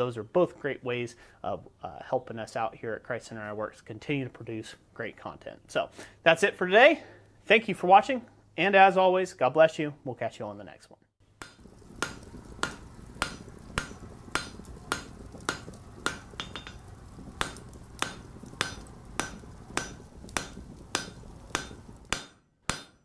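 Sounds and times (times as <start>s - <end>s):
low steady rumble: 11.4s - 22.3s
hammer striking anvil: 11.4s - 23.0s.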